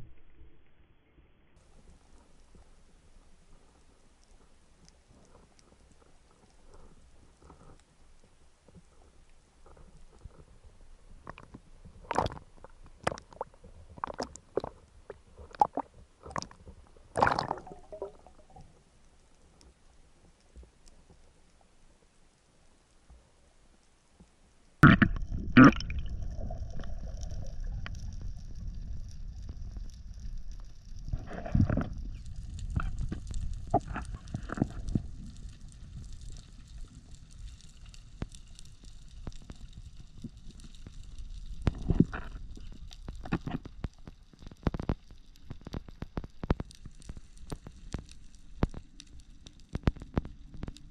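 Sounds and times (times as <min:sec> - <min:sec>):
underwater clicks and crackles: 0:01.6 - 0:50.9
underwater rush of water: 0:11.3 - 0:18.8, 0:24.8 - 0:44.1
water splashing and gurgling: 0:12.0 - 0:14.8, 0:15.4 - 0:18.7, 0:24.8 - 0:29.8.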